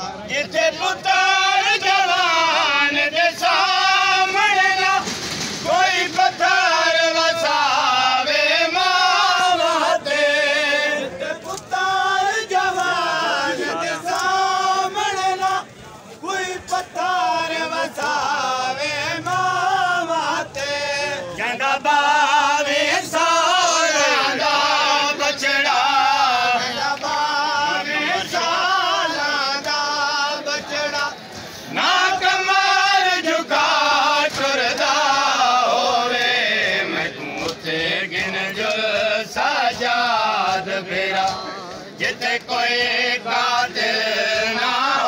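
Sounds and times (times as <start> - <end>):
men singing a lament: 0.0 - 45.0.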